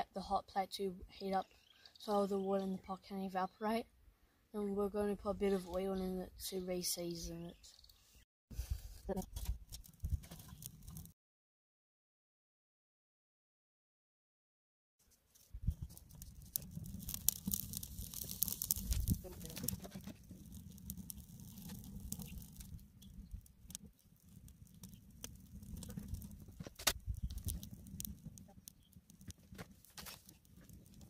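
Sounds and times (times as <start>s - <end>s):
dry grass and sticks crackling: 9.1s - 11.1s, 15.1s - 31.0s.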